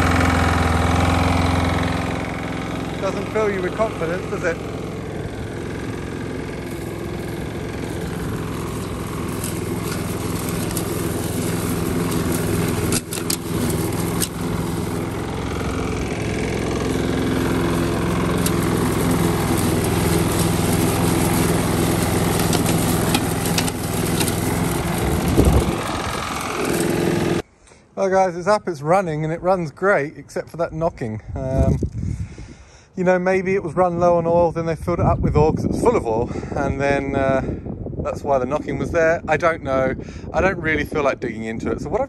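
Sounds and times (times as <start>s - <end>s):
lawn mower engine running: 0.0s - 27.4s.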